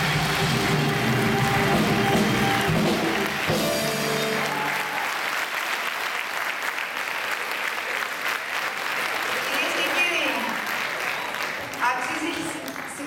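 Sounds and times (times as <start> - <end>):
choir and band playing: 0.0 - 5.1
audience applauding: 0.0 - 13.0.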